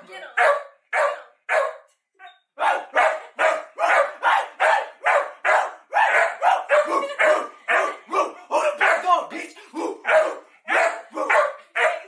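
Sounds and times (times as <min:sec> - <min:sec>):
dog barking rapidly: 0:00.4 - 0:01.8, 0:02.6 - 0:08.0, 0:08.8 - 0:09.2, 0:10.0 - 0:12.0.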